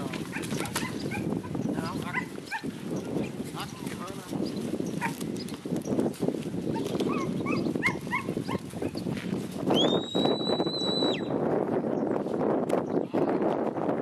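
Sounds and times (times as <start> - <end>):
cattle moving rustle: 0.0 - 9.8
long high whistle: 9.8 - 11.3.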